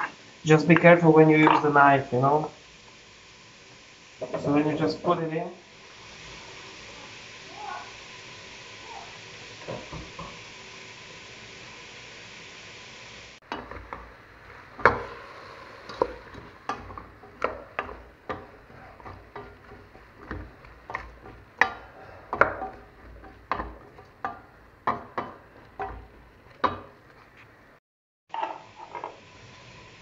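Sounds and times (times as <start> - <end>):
spoon stirring vegetables: 15.8 - 26.9
wooden spoon knocking steel pot: 15.9 - 26.9.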